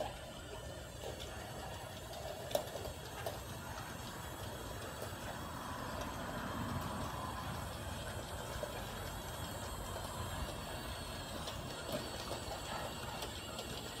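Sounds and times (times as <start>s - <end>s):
small motor whir: 0.0s - 14.0s.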